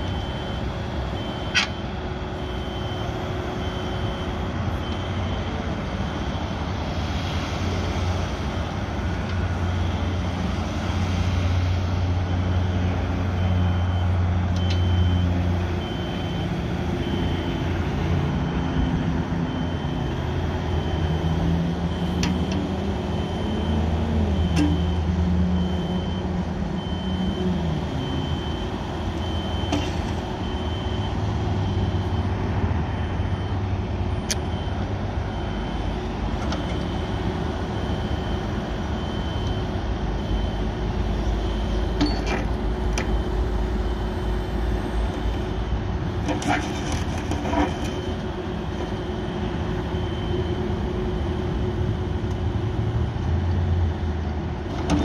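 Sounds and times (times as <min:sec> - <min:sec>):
excavator diesel engine: 0:00.0 - 0:55.0
high electronic beep: 0:41.3 - 0:44.2.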